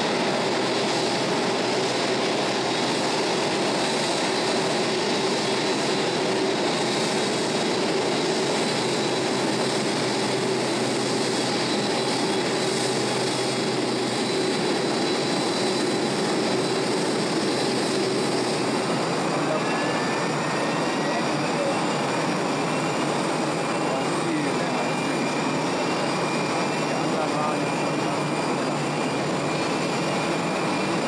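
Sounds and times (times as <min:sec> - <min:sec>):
jet engines roaring and whining: 0:00.0 - 0:31.0.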